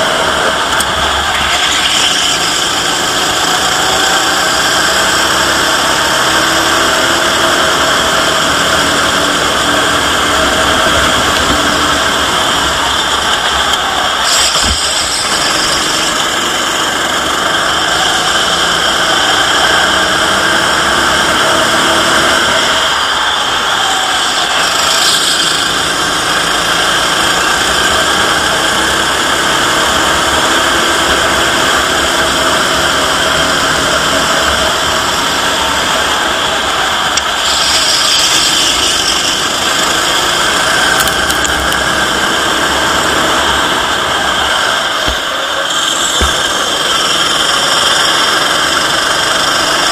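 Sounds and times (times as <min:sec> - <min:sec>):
go-kart engine running: 0:00.0 - 0:49.9.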